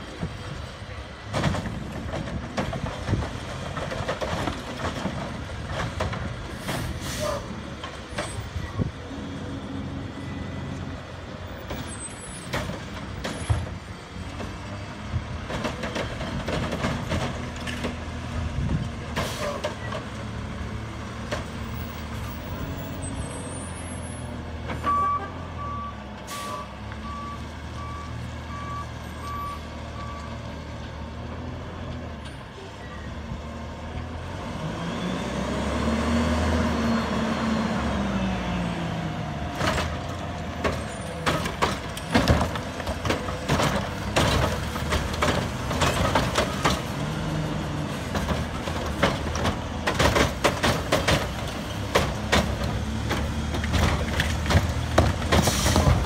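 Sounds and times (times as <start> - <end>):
garbage truck engine running: 36.1 - 56.0.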